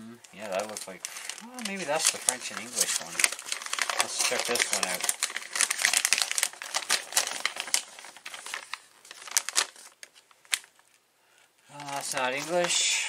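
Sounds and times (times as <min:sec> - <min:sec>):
paper crinkling and rustling: 0:00.3 - 0:11.0, 0:11.7 - 0:12.9.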